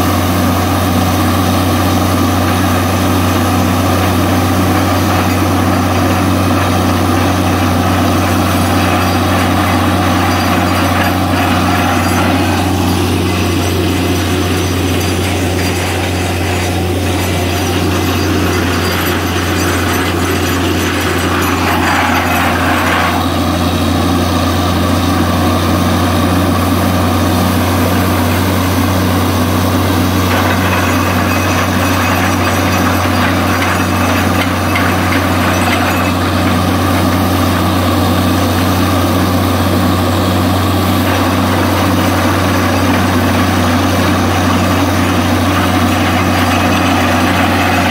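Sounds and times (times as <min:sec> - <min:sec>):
heavy engine running: 0:00.0 - 0:47.9.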